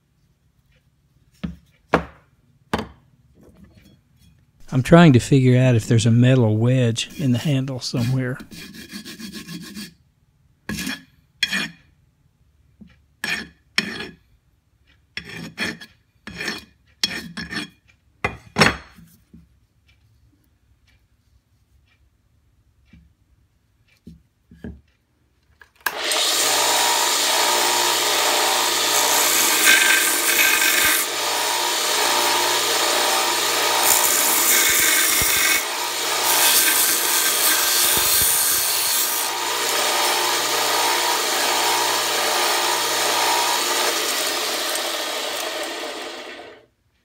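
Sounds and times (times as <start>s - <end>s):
belt sander grinding hammer head: 4.6s - 8.9s, 25.9s - 46.6s
belt sander running: 25.9s - 46.6s.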